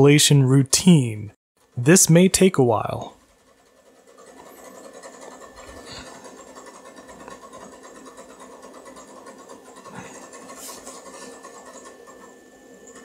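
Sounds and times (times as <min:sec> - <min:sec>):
computer drives whirring and ticking: 0:00.0 - 0:13.0.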